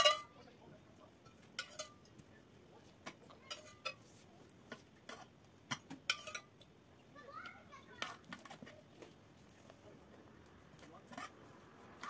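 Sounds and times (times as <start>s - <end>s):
metal spoon clinking on pan: 0.0s - 0.4s, 1.2s - 2.1s, 3.1s - 4.0s, 4.7s - 6.6s.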